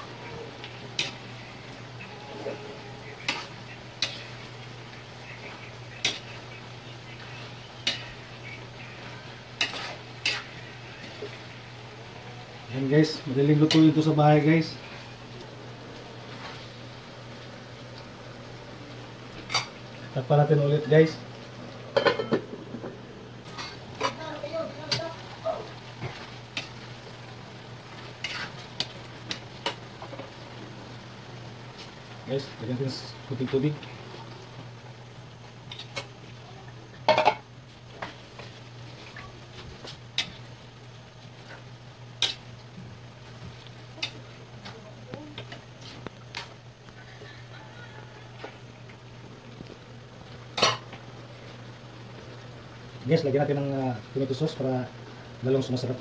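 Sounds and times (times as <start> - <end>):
food sizzling in pan: 0.0 - 56.0
metal spatula scraping a wok: 9.6 - 11.2, 28.2 - 28.6.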